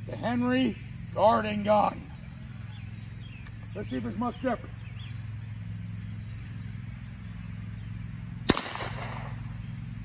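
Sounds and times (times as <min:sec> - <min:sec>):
low steady hum: 0:00.0 - 0:10.0
gunshot crack with echo: 0:08.5 - 0:09.4.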